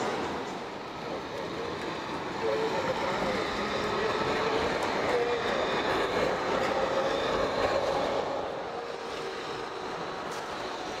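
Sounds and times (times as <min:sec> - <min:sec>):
tram wheels rumbling on rails: 0:00.0 - 0:11.0.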